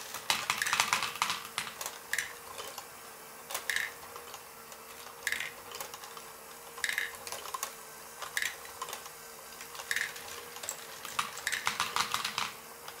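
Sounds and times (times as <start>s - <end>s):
flurry of plastic clicks: 0.0s - 2.9s, 3.5s - 13.0s
mechanism clacking: 0.0s - 13.0s
small electric motor humming: 0.0s - 13.0s
plastic balls rolling and clattering: 6.8s - 13.0s.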